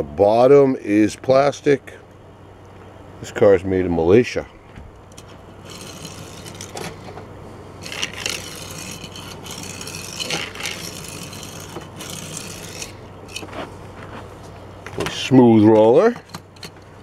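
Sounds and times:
toy car rolling on wood: 0:05.1 - 0:07.0, 0:07.8 - 0:13.5.

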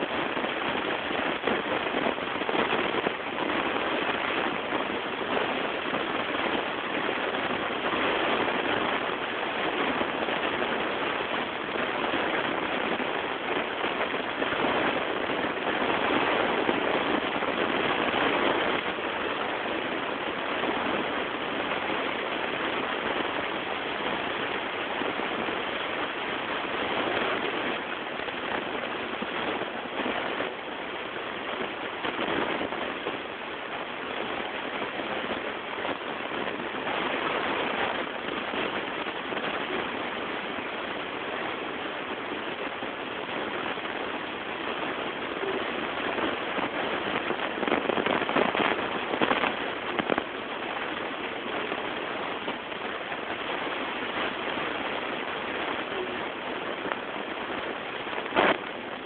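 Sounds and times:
recording hiss and crackle: 0:00.0 - 0:59.0.

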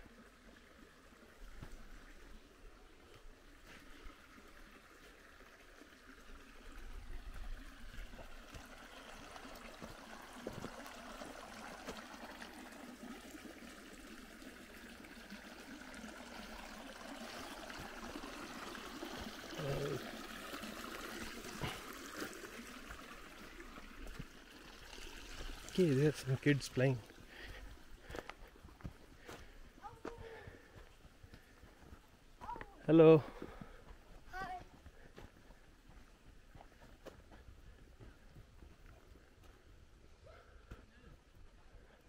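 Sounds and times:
small stream flowing: 0:00.0 - 0:42.0
faint voice: 0:19.6 - 0:20.1, 0:29.8 - 0:30.5.

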